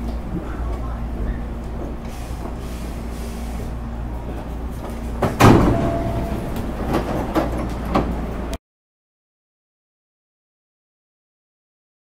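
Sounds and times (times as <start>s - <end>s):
air conditioning humming: 0.0s - 8.6s
train doors sliding open: 0.5s - 8.6s.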